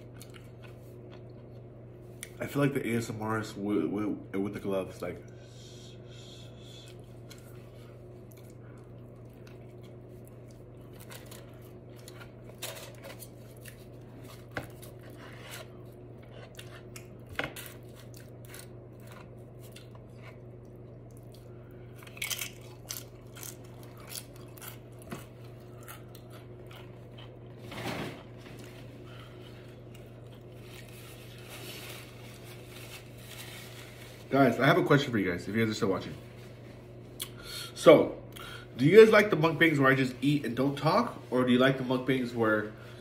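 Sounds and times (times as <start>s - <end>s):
biting and chewing food: 0.0s - 2.4s, 6.9s - 31.4s
low hum: 3.8s - 34.6s.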